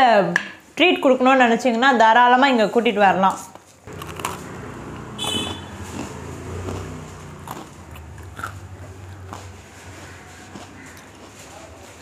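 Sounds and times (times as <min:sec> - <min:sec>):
person crunching and chewing waffle: 0:03.9 - 0:04.4, 0:08.3 - 0:11.4.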